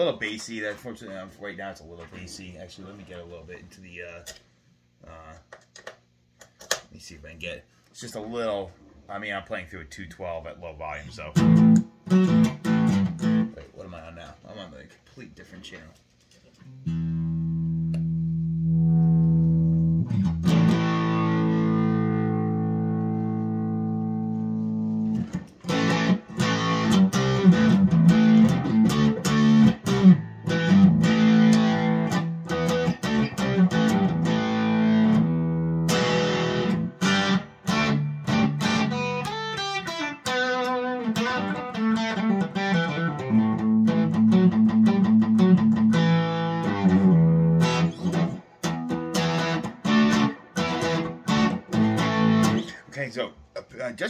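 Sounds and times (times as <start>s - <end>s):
electric guitar chords and riffs: 11.3s - 13.6s, 16.7s - 52.8s.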